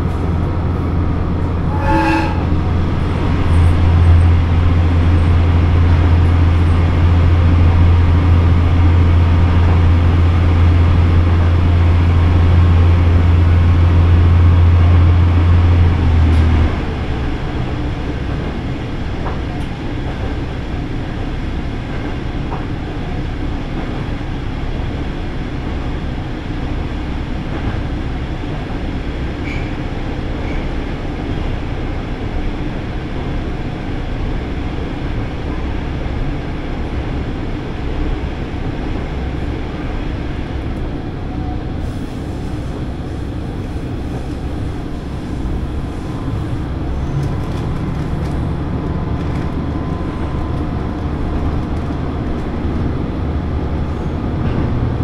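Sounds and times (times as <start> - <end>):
diesel engine drone: 0.0 - 55.0
train rumbling on rails: 0.0 - 55.0.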